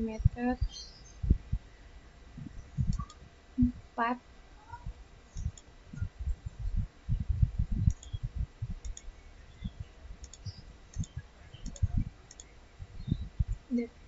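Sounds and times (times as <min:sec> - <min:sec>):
dull low thumps: 0:00.0 - 0:14.0
computer mouse clicking: 0:02.9 - 0:03.2, 0:05.3 - 0:05.7, 0:07.9 - 0:08.2, 0:08.8 - 0:09.1, 0:10.2 - 0:12.5.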